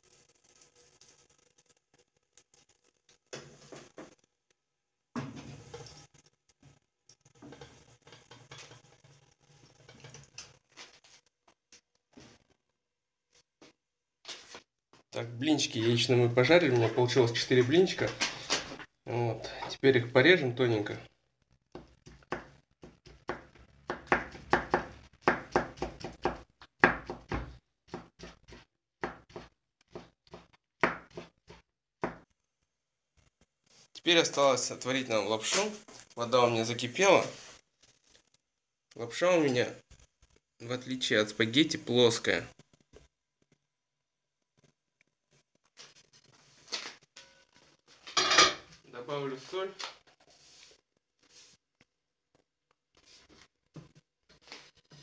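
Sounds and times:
pancake sizzling in frying pan: 0.0 - 4.2, 5.4 - 11.2.

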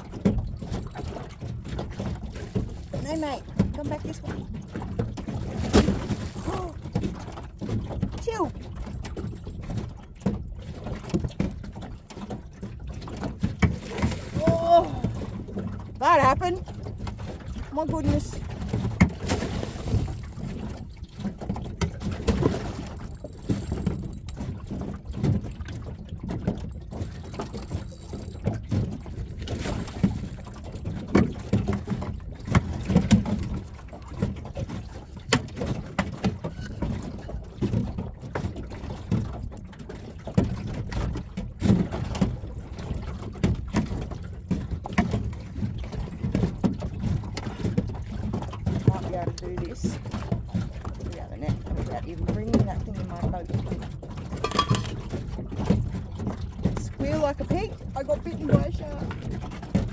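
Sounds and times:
water slapping against boat hull: 0.0 - 59.9
knocks and thumps: 54.2 - 55.8.

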